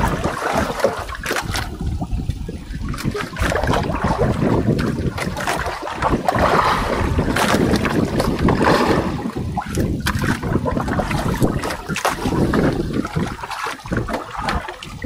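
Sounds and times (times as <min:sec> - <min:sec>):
water sloshing against hull: 0:00.0 - 0:15.0
wind buffeting microphone: 0:00.0 - 0:15.0.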